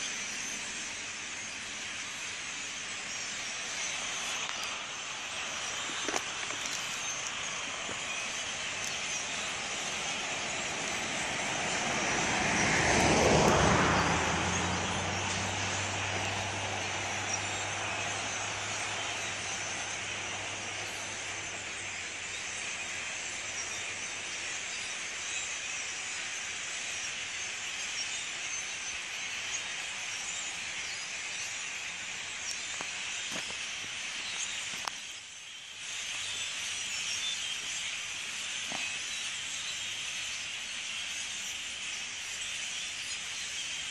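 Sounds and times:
starlings chattering: 0.0 - 43.9
vehicle passing: 9.2 - 22.0.

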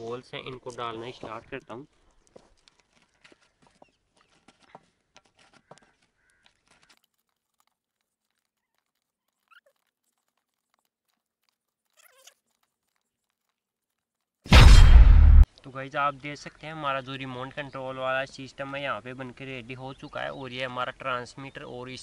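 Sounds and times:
aluminium foil crinkling: 2.0 - 3.6, 5.9 - 14.4.

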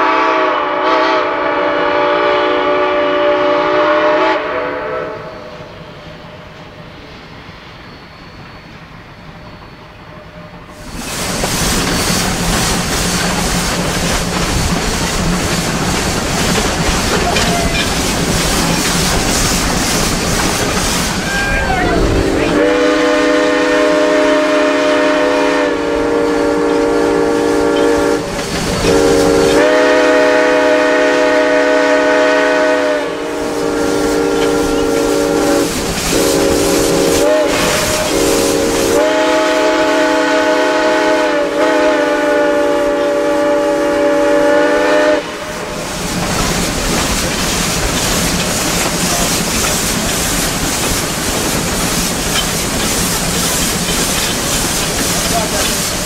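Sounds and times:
steam locomotive whistle: 0.0 - 5.8, 21.0 - 45.9
train rumble: 0.0 - 56.0.

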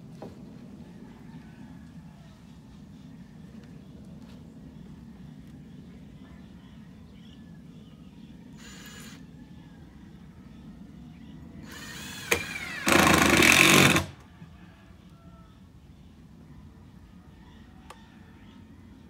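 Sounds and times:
power tool whining: 11.6 - 14.2.

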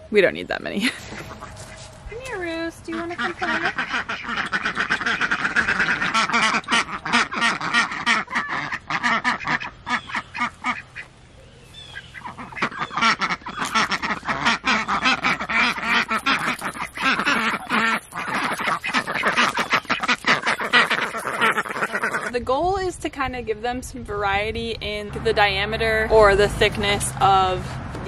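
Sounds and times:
ducks quacking: 0.8 - 11.1, 11.8 - 22.4.

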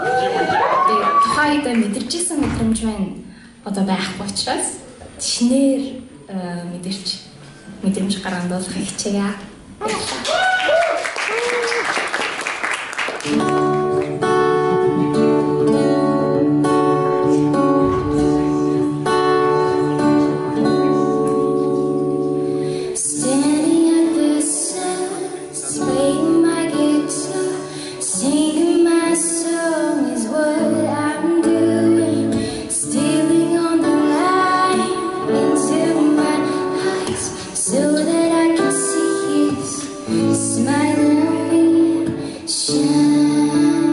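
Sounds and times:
acoustic guitar playing: 13.1 - 43.9
woman singing: 22.9 - 43.9.

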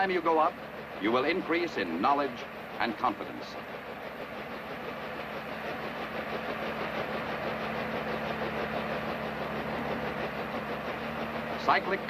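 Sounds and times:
helicopter hovering: 0.0 - 12.0.

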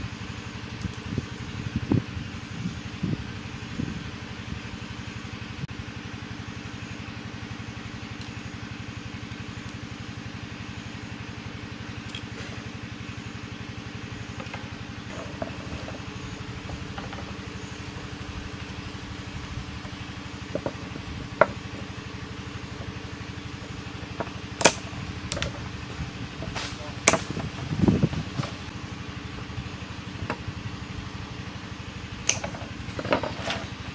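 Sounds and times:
small engine idling: 0.0 - 33.9
pruning shears snapping: 24.5 - 25.6, 26.4 - 27.7, 32.2 - 32.5.

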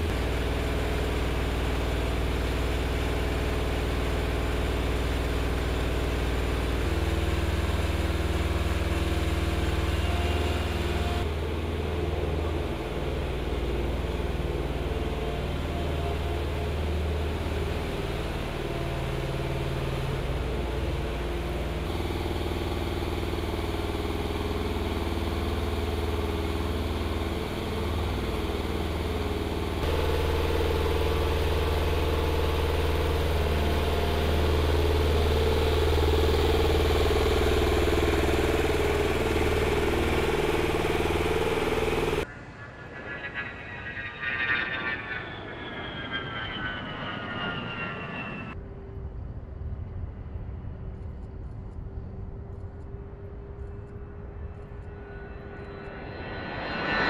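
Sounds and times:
truck engine droning: 0.0 - 48.6.

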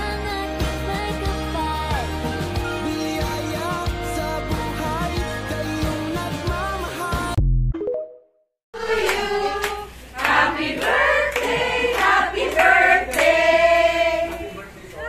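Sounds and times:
recorded music: 0.0 - 7.7
women singing together: 8.8 - 14.5.

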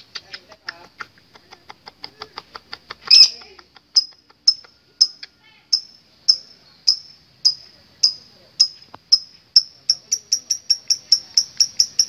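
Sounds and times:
bird clicking chirps: 0.0 - 12.0
sharp high bird chirps: 3.1 - 3.3, 4.0 - 12.0
bird harsh squawk: 3.1 - 3.4.

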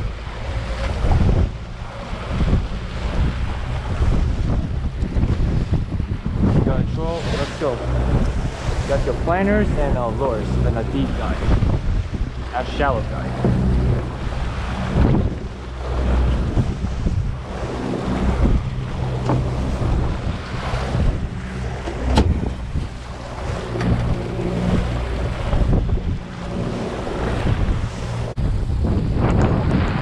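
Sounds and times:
boat wake churning: 0.0 - 30.0
outboard motor humming: 0.0 - 30.0
wind buffeting microphone: 0.0 - 30.0.

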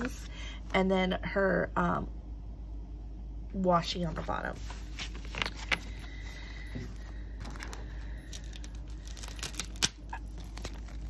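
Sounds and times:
paper rustling: 4.6 - 6.0, 7.4 - 11.0.

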